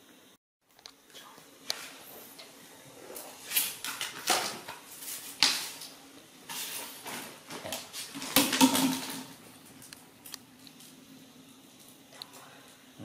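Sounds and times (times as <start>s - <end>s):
plastic wastebasket clattering on tiles: 3.5s - 5.9s, 6.5s - 9.4s.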